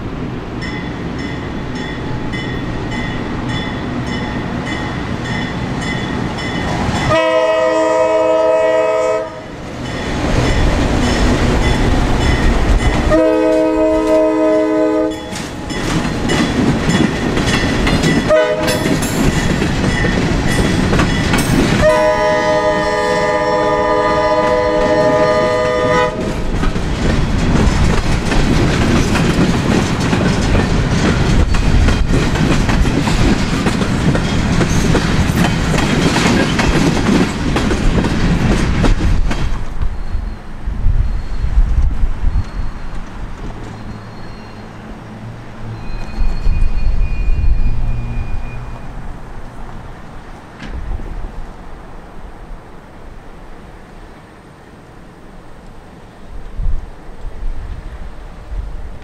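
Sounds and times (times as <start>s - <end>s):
locomotive and train rumbling: 0.0s - 59.0s
locomotive air horn blasts: 7.1s - 9.6s, 13.1s - 15.3s, 18.3s - 18.9s, 21.8s - 26.4s
freight cars clickety-clack: 9.8s - 23.4s, 24.5s - 39.9s, 41.6s - 46.8s.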